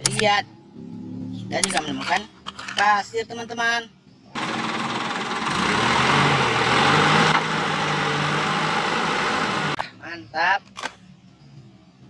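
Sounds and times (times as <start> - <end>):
truck engine hum: 4.4 - 9.8.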